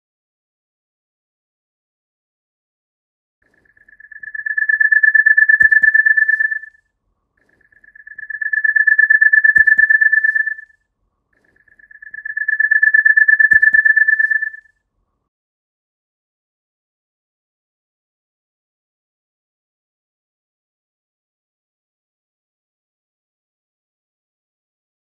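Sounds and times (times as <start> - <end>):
pedestrian crossing signal pulsing tone: 3.6 - 6.7, 7.4 - 10.7, 11.4 - 14.7.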